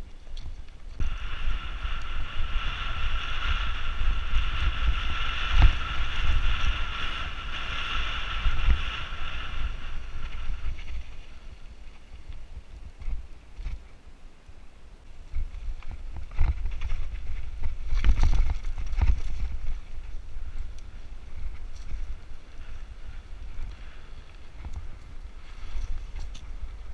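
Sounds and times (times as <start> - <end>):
bike tyres rumbling on dirt: 0.0 - 13.9, 15.3 - 26.9
wind rushing over microphone: 0.0 - 13.9, 15.2 - 26.9
steady high buzz: 1.0 - 11.9.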